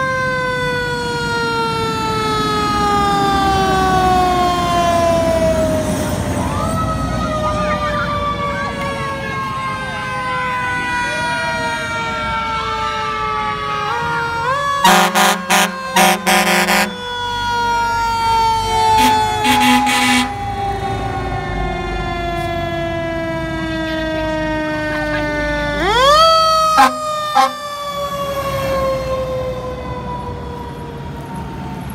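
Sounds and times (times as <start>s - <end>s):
fire truck siren: 0.0s - 31.9s
truck horn blasts: 14.8s - 17.0s, 19.0s - 20.4s, 26.8s - 27.6s.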